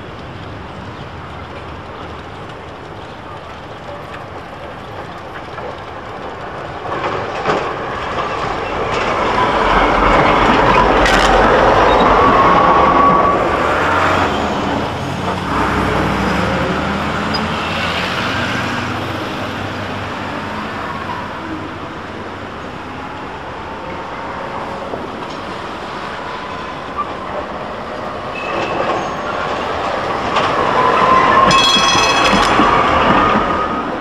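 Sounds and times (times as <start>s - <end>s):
tram rolling on track: 0.0s - 34.0s
tram wheels squealing: 1.0s - 22.0s, 23.7s - 34.0s.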